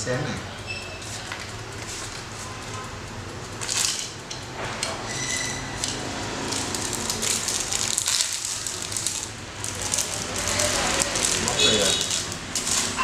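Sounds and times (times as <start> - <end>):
plastic packaging crinkling: 3.2 - 13.0.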